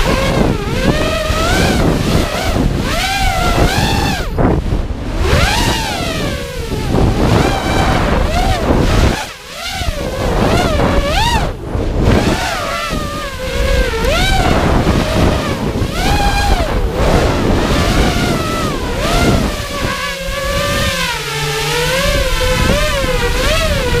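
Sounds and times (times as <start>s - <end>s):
drone motors whining: 0.0s - 24.0s
wind rushing over microphone: 0.0s - 24.0s.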